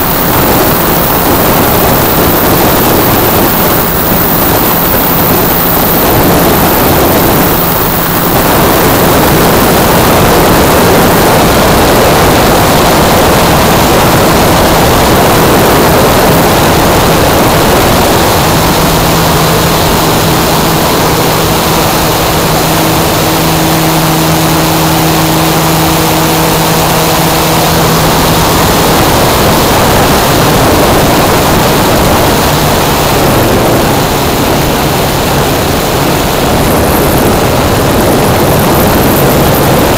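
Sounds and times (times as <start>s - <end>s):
electric motor and propeller hum: 0.0s - 39.9s
wind rushing over microphone: 0.0s - 39.9s.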